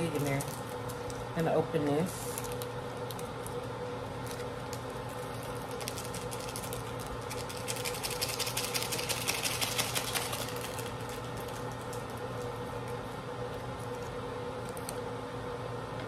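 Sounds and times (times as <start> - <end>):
plastic foil packet crinkling: 0.0 - 1.4, 2.2 - 13.0
steady hum: 0.0 - 16.0.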